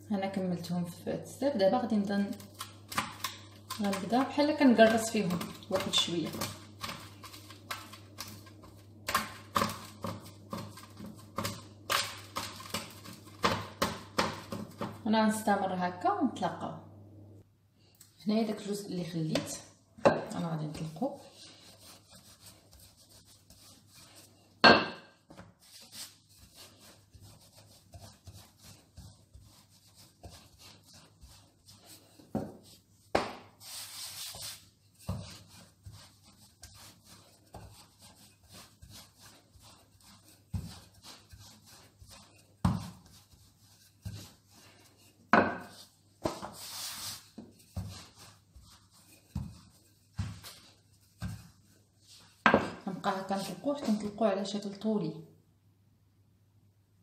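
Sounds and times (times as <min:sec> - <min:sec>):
rolling pin rolling dough: 0:01.5 - 0:15.6, 0:18.4 - 0:54.2
rolling pin knocking on stone: 0:45.3 - 0:46.5, 0:52.5 - 0:52.8.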